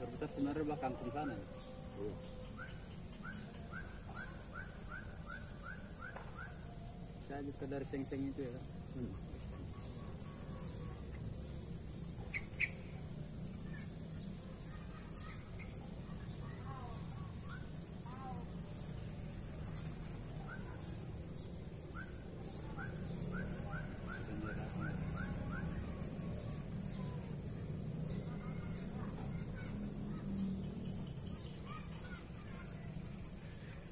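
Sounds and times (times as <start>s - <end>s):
high pulsing insect drone: 0.0s - 33.9s
bird calling: 22.0s - 25.9s.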